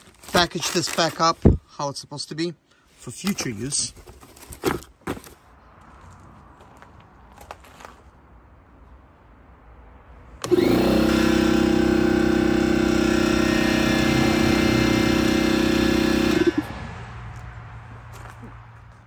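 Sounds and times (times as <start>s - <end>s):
air compressor running: 10.4s - 16.7s.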